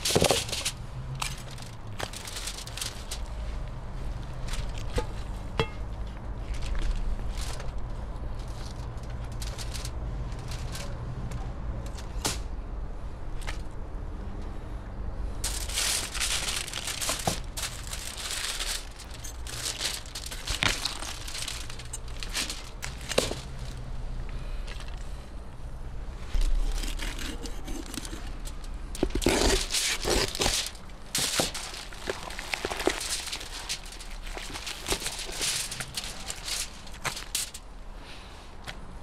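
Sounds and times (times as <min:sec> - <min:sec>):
aluminium foil crinkling: 0:00.0 - 0:03.5, 0:06.4 - 0:11.0, 0:15.4 - 0:23.8, 0:26.3 - 0:37.8.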